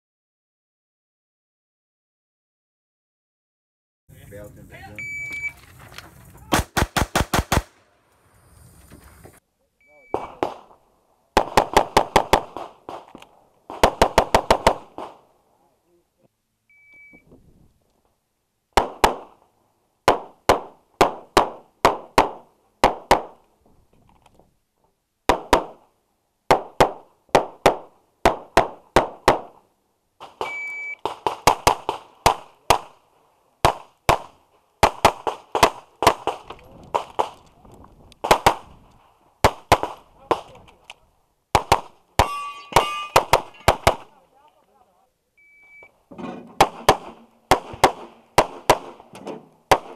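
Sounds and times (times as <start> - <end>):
short electronic beep: 5.0 - 5.6, 9.8 - 10.4, 16.7 - 17.2, 30.4 - 31.0, 45.4 - 46.0
pistol shots: 6.5 - 7.8, 11.4 - 15.2, 18.8 - 19.4, 30.2 - 33.0, 33.6 - 37.4, 38.2 - 38.7, 39.4 - 40.6, 41.5 - 44.1, 46.6 - 49.9.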